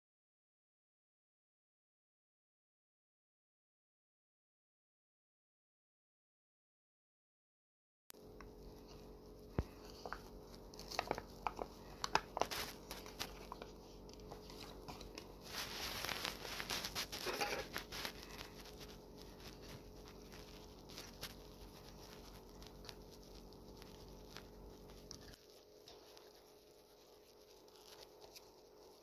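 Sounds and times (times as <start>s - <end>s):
faint steady hum: 8.2s - 29.0s
lid crinkling: 9.6s - 26.4s.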